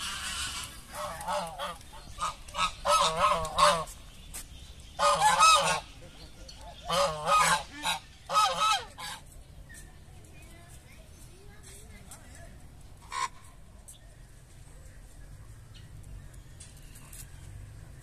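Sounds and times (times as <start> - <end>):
geese honking: 0.0 - 4.0, 5.0 - 6.0, 6.7 - 9.3.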